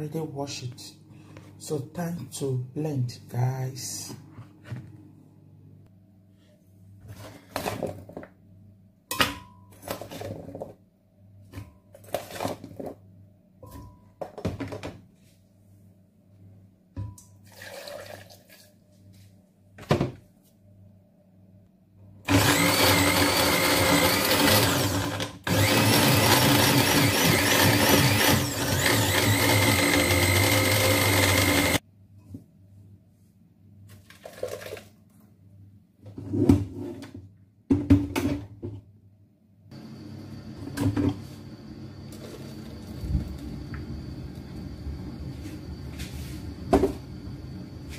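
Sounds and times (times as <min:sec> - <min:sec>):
blender running: 0:22.3 - 0:31.8.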